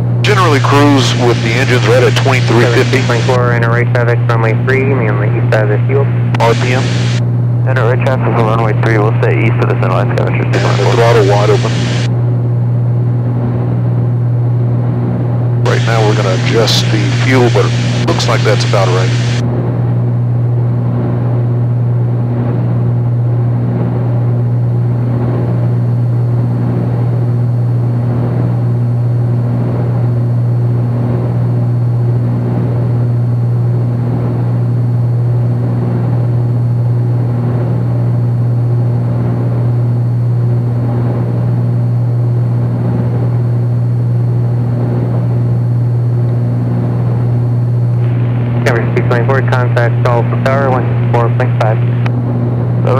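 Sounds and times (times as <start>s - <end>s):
twin propeller plane engine drone: 0.0s - 52.9s.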